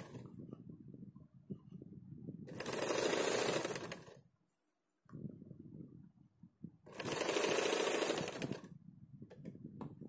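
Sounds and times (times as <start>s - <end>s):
electric sewing machine stitching: 2.5s - 4.2s, 6.9s - 8.7s.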